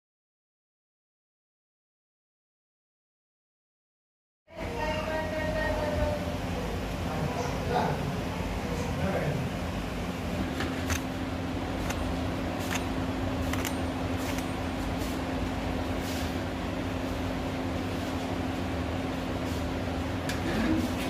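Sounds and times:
motor hum: 4.5 - 21.0.

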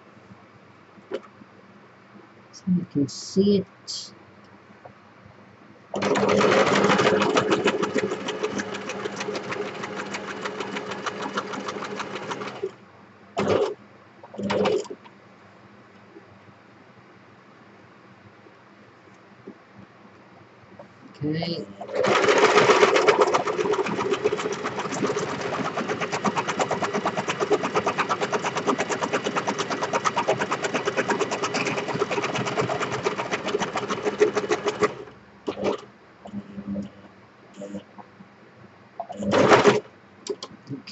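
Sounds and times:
sewing machine stitching: 6.0 - 12.8, 13.4 - 15.0, 21.8 - 35.8, 39.2 - 40.5.

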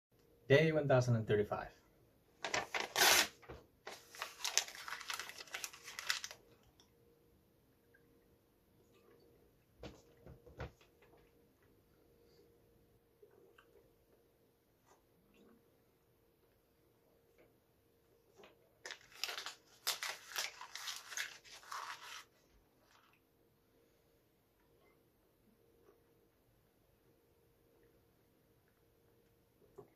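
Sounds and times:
paper ripping: 2.4 - 6.4, 18.8 - 23.1
paper crinkling while chewed: 3.9 - 6.9, 18.8 - 23.2.

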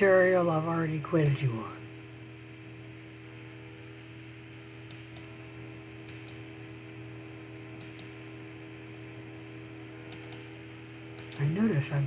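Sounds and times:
steady low hum: 0.0 - 12.0
computer mouse clicks: 4.8 - 5.3, 6.0 - 6.4, 7.8 - 8.2, 10.1 - 10.5, 11.2 - 11.5.

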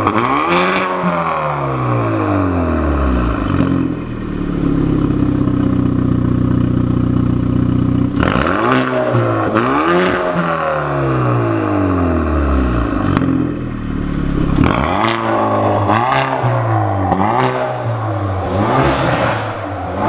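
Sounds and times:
car engine revving: 0.0 - 20.0
exhaust cracks: 12.9 - 20.0.

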